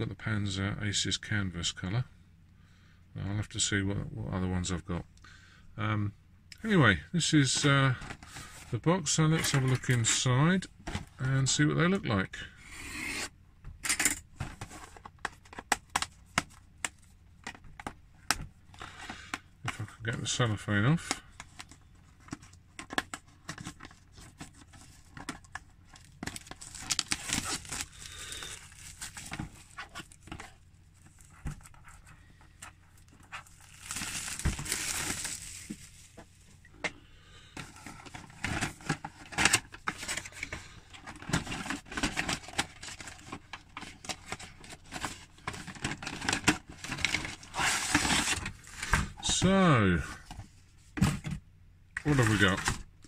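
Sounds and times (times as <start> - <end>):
cellophane wrapper crinkling: 22.8 - 36.2
shrink-wrap tearing: 26.0 - 30.2, 33.3 - 35.9, 44.1 - 48.6.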